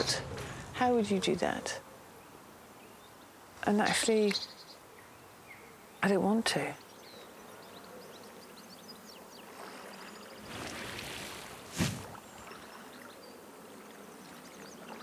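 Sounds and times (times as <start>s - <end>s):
rustling of bulrushes: 9.6s - 12.9s.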